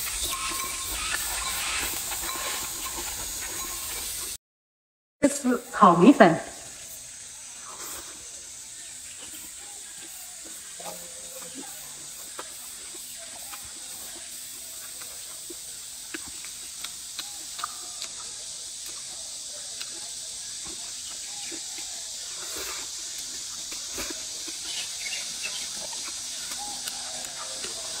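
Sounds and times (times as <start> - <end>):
steady high hiss: 0.0 - 4.4, 5.2 - 28.0
noodles slurped and chewed: 11.4 - 28.0.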